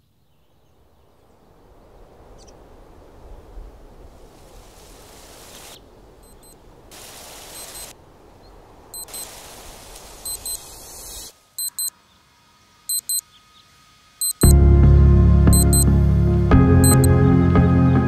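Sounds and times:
electronic alarm double beeps: 0:09.0 - 0:09.2, 0:10.3 - 0:10.6, 0:11.6 - 0:11.9, 0:12.9 - 0:13.2, 0:14.2 - 0:14.6, 0:15.5 - 0:15.9, 0:16.8 - 0:17.1.

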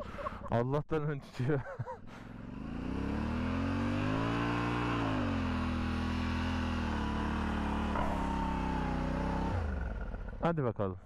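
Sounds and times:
motorcycle engine revving: 0:02.1 - 0:10.5.

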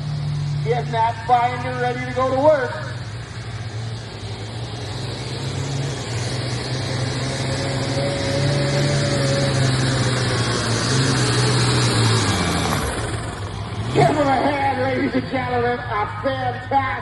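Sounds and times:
diesel tractor engine droning: 0:00.0 - 0:17.0.

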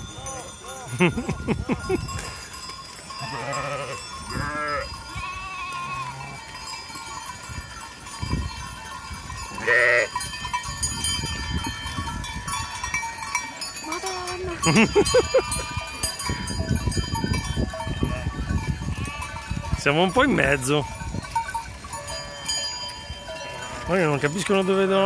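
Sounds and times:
animal bells jingling: 0:00.0 - 0:25.0
sheep and goats bleating: 0:03.1 - 0:06.7, 0:09.5 - 0:10.3, 0:17.8 - 0:19.7, 0:22.0 - 0:24.2.

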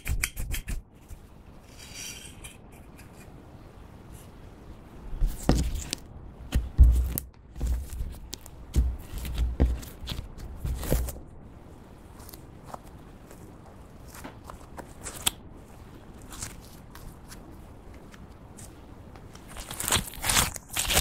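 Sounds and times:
hands squishing slime: 0:05.2 - 0:11.2, 0:12.0 - 0:21.0.

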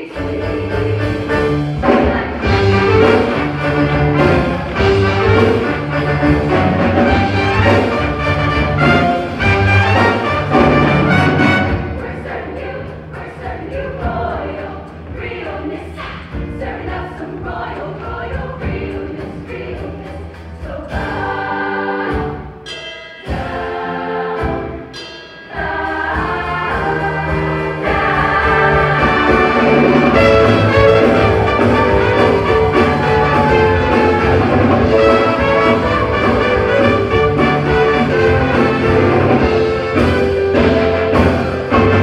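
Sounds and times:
choir singing: 0:00.0 - 0:42.0
instrumental accompaniment: 0:00.0 - 0:42.0.

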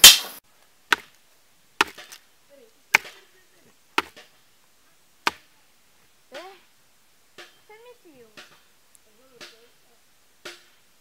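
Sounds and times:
machete chopping plant stalks: 0:01.8 - 0:02.2.

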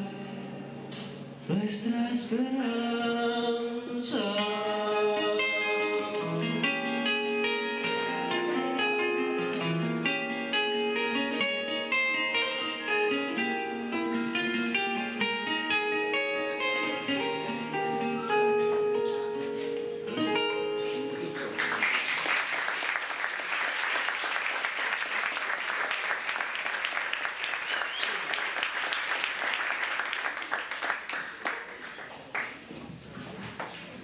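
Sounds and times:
acoustic guitar plucked notes: 0:00.0 - 0:21.6
audience applause: 0:21.3 - 0:32.7.

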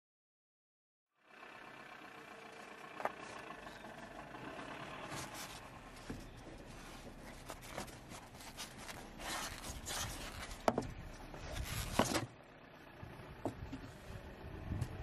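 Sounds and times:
trim rustling and scraping: 0:05.0 - 0:12.4.

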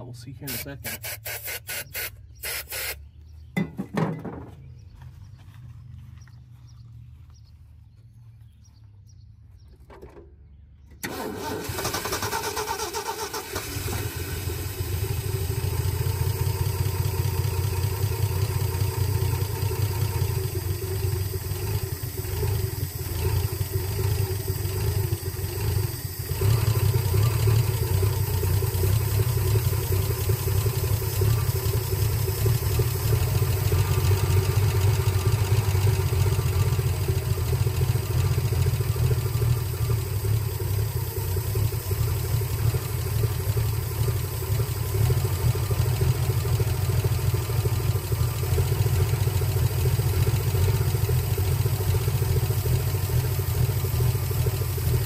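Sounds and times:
truck engine starting and rumbling: 0:00.0 - 0:55.0.

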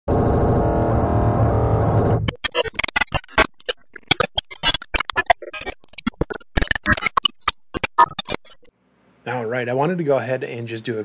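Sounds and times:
loud droning chord: 0:00.1 - 0:02.3
choppy stuttering glitch effect: 0:00.1 - 0:08.7.

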